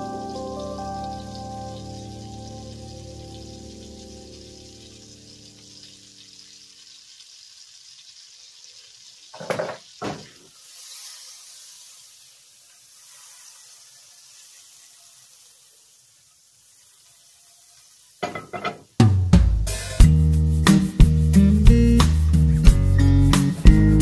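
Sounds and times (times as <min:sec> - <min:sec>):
butter sizzling in frying pan: 0:00.0 - 0:24.0.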